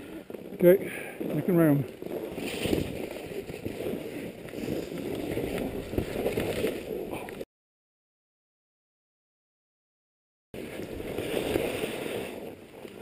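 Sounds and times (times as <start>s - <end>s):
skis scraping through snow: 0.0s - 7.2s, 10.6s - 13.0s.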